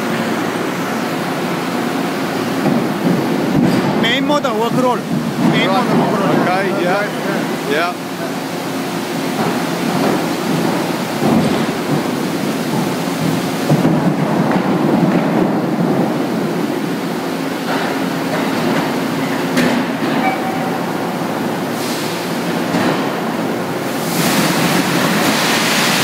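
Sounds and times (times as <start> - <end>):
rolling mill rumble: 0.0 - 26.0
water spray and steam rushing: 20.3 - 22.7, 23.8 - 26.0.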